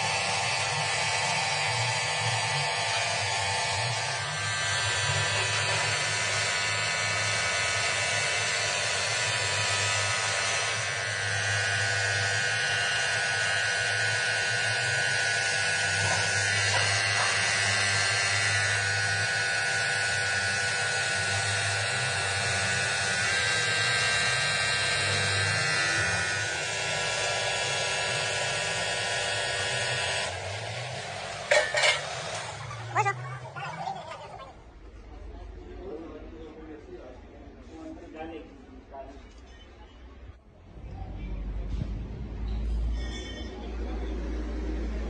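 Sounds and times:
angle grinder grinding metal rod: 0.0s - 34.6s.

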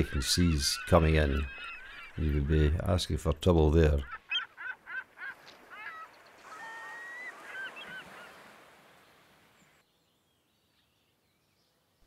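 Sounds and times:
seabirds crying: 0.0s - 3.1s, 3.8s - 9.8s.

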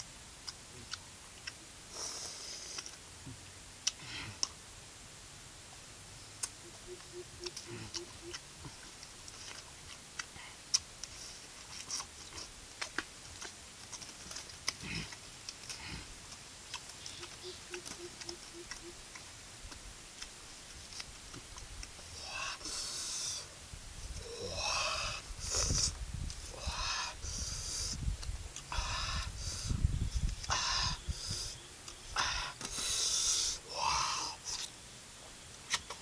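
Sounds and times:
breathy hissing sounds: 1.9s - 3.0s, 22.0s - 28.1s, 28.7s - 34.7s.

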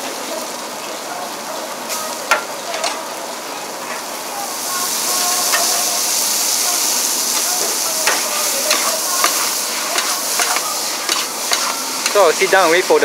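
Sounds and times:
noodles sizzling in a wok: 0.0s - 13.0s
metal spatula knocking on wok: 8.0s - 9.4s.

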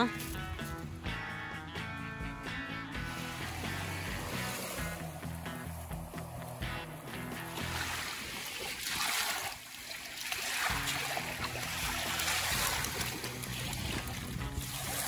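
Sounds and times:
background music with chords: 0.0s - 8.1s
waves lapping at shoreline: 3.1s - 15.0s.

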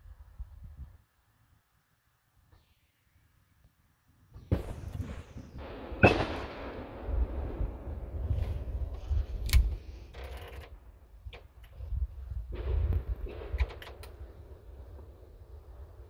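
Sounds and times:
fireworks bangs and cracks: 4.4s - 9.3s, 12.3s - 16.0s
fireworks crackle: 4.4s - 9.4s.

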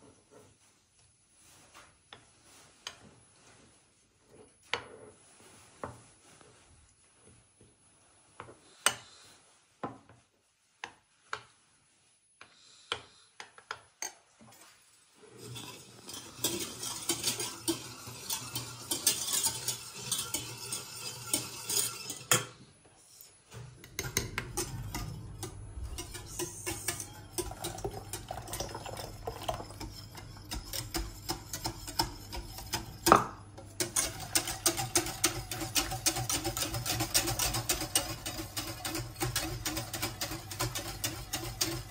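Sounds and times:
whisk rattling in steel saucepan: 15.4s - 22.4s, 23.9s - 41.9s
low hum: 23.6s - 29.1s.

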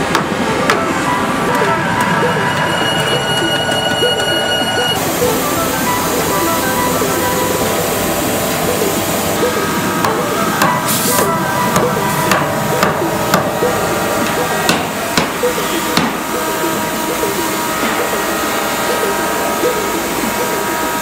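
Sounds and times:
mallet knocking wooden chair: 14.7s - 16.2s.

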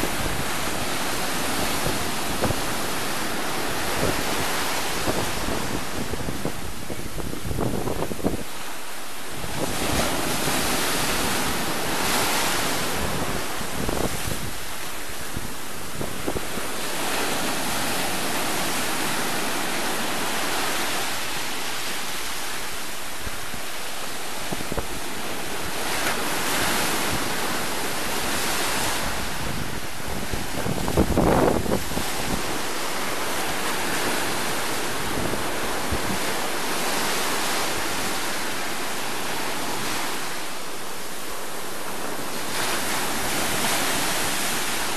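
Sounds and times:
wind rumbling on microphone: 0.0s - 44.9s
surf breaking on rocks: 9.3s - 40.6s.

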